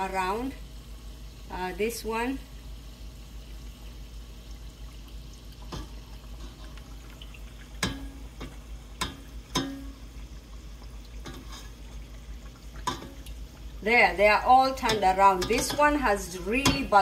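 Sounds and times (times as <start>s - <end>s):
oil sizzling: 0.0s - 17.0s
skimmer clinking against pot: 7.8s - 9.9s, 11.2s - 11.8s, 12.8s - 13.2s, 14.6s - 17.0s.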